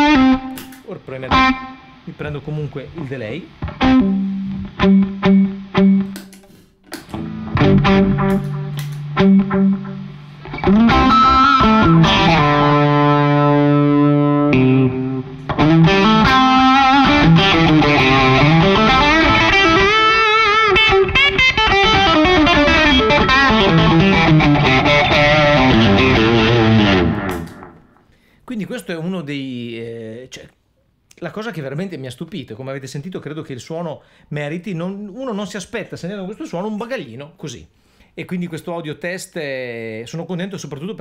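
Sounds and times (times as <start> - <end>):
distorted electric guitar: 0.0 - 28.0.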